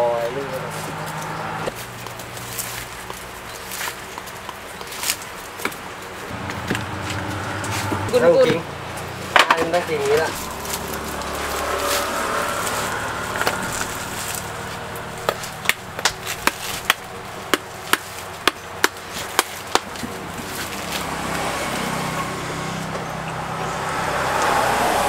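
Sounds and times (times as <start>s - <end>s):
steady background noise: 0.0s - 25.0s
blade chopping coconut: 15.2s - 20.2s.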